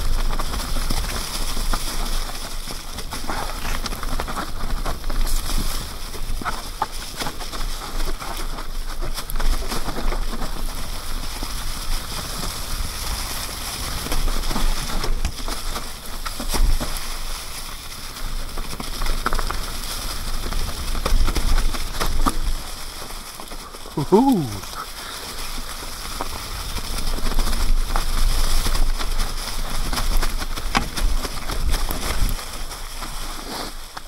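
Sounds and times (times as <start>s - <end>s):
bike rattling over ground: 0.0s - 24.0s, 24.7s - 34.0s
bike tyres crackling through leaves: 0.0s - 34.0s
wind rumble on microphone: 25.4s - 33.2s.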